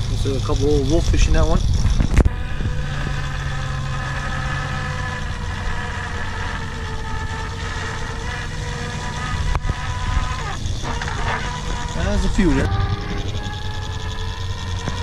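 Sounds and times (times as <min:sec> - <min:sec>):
boat engine drone: 0:00.0 - 0:15.0
hydraulic hauler whine: 0:00.0 - 0:15.0.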